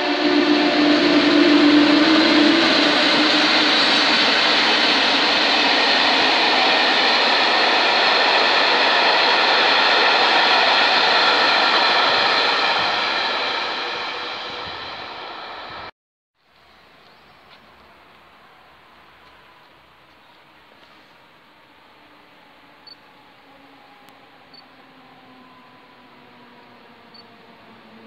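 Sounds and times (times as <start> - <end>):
train wheels on rails: 0.0 - 15.9.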